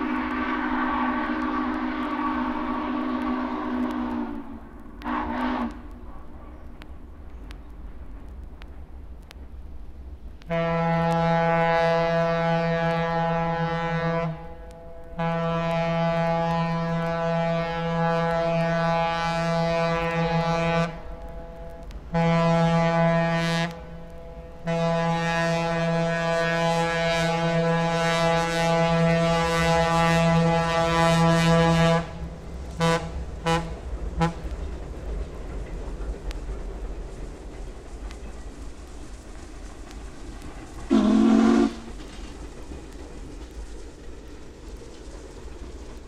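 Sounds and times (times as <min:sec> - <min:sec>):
steam locomotive whistle: 0:00.0 - 0:05.9, 0:10.5 - 0:32.2, 0:32.8 - 0:34.5, 0:40.9 - 0:42.0
moving train rumble: 0:00.0 - 0:46.0.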